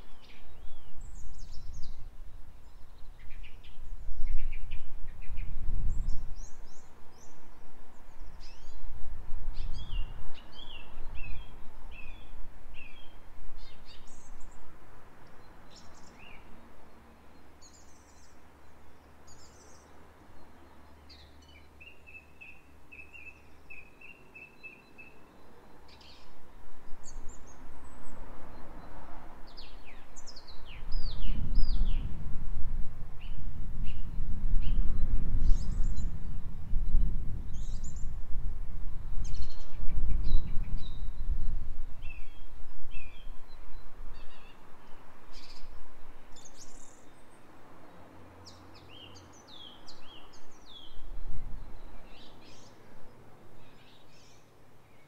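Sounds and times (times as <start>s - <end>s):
wind rumbling on microphone: 0.0s - 16.5s, 26.0s - 47.3s, 48.5s - 54.3s
birds singing and chirping: 29.5s - 32.2s, 33.2s - 38.1s, 39.2s - 45.8s, 51.6s - 52.8s.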